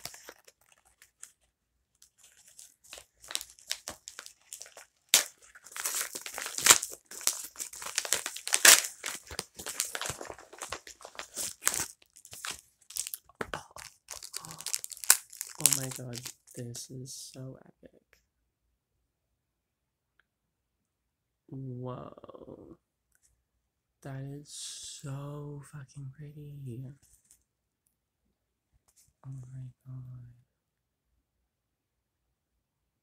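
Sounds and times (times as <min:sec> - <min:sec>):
packaging crinkling and tearing: 0:00.0 - 0:16.6.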